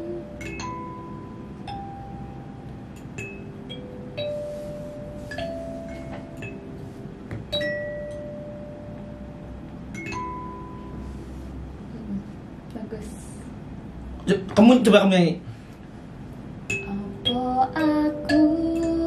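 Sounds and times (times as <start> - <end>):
kalimba plucked notes: 0.0 - 11.2.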